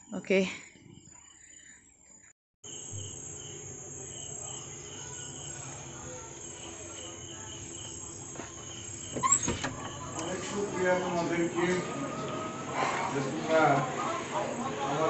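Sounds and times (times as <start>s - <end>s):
crickets chirping: 0.0s - 15.0s
door clicks and squeak: 8.7s - 10.3s.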